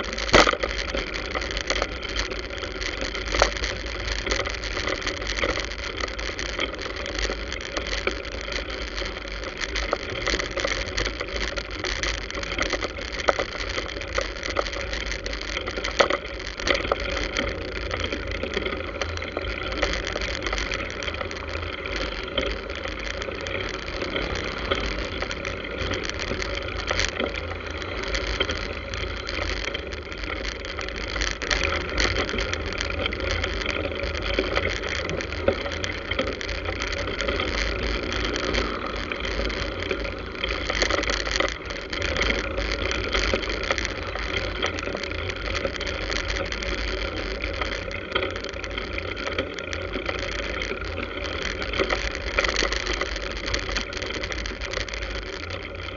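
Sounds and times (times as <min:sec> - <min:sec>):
motorbike and car traffic: 0:17.8 - 0:48.3.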